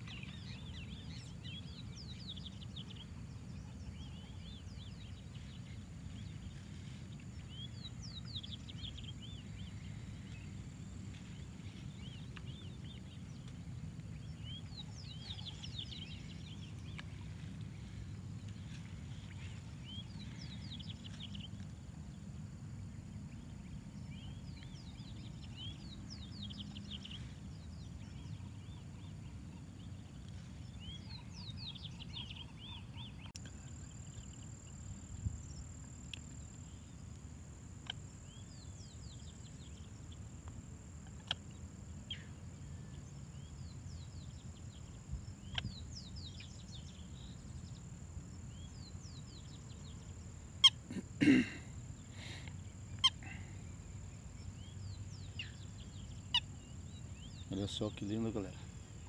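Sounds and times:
low outdoor rumble: 0:00.0 - 0:59.0
small birds chirping: 0:00.0 - 0:59.0
loud bird call: 0:50.6 - 0:53.6.

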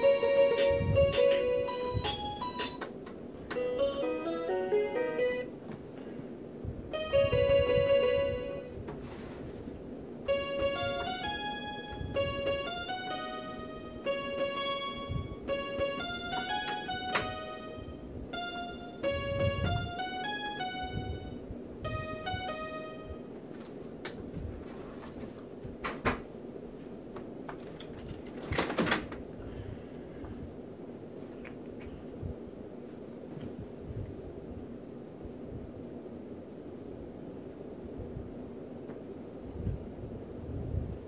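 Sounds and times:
electronic keyboard playing: 0:00.0 - 0:05.6, 0:06.9 - 0:08.8, 0:10.2 - 0:23.4.

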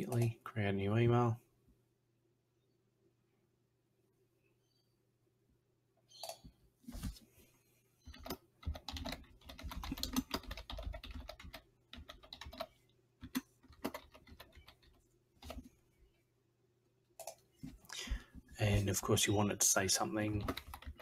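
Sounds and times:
typing on computer keyboard: 0:08.1 - 0:15.7, 0:20.3 - 0:21.0.

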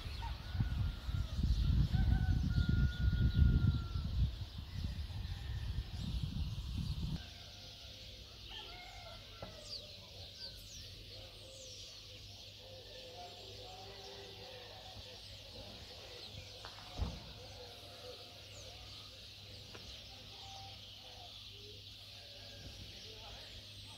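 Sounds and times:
thump: 0:16.6 - 0:17.5.

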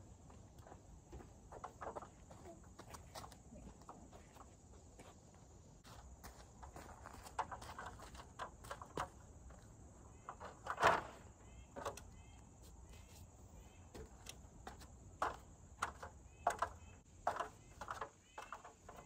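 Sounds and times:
footsteps on sandy ground: 0:00.0 - 0:09.1
bird chirps: 0:11.4 - 0:14.3.

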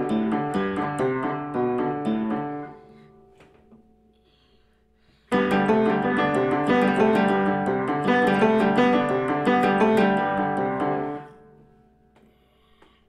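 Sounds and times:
upright piano playing: 0:00.0 - 0:03.0, 0:05.3 - 0:11.6.

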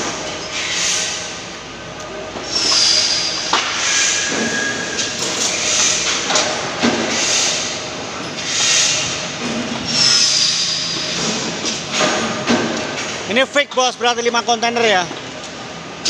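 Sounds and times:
brief squealing tones: 0:02.5 - 0:05.8, 0:09.9 - 0:11.0.

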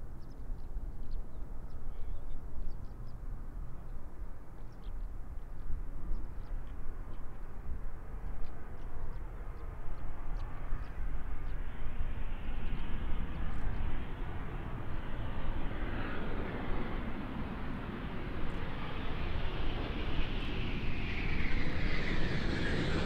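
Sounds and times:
jet engine rumbling: 0:11.2 - 0:23.0.

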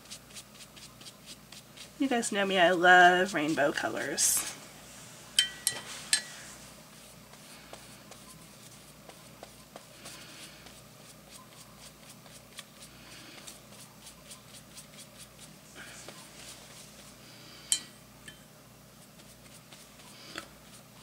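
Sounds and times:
paintbrush brushing on paper: 0:00.0 - 0:02.4, 0:05.8 - 0:17.2, 0:18.9 - 0:21.0.

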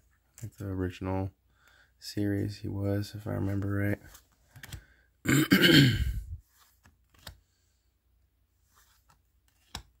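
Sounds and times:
man clearing his throat: 0:05.2 - 0:06.3.

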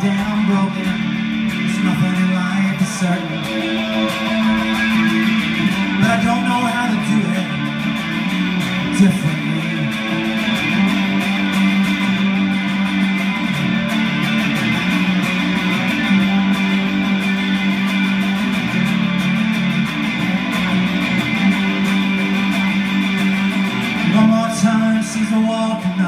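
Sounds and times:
person singing: 0:00.0 - 0:07.9, 0:08.7 - 0:11.6, 0:24.0 - 0:26.0
electric guitar strumming: 0:00.0 - 0:26.0.

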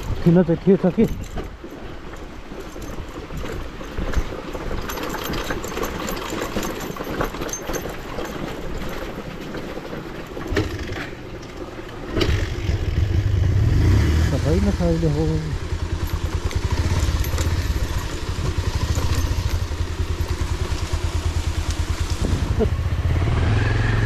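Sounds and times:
motorcycle engine running: 0:12.1 - 0:24.0.

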